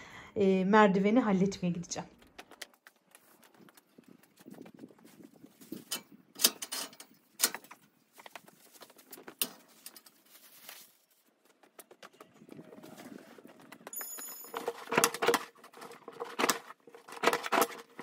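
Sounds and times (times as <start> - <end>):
broom and dustpan handling: 7.5 - 11.8.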